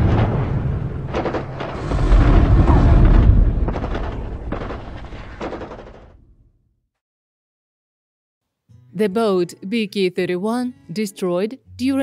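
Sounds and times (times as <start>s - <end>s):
deep rumble: 0.0s - 6.4s
booming explosions: 0.0s - 6.6s.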